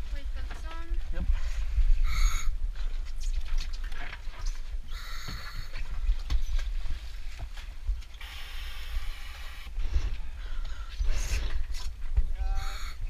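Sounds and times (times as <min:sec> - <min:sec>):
hiss: 0:08.2 - 0:09.7.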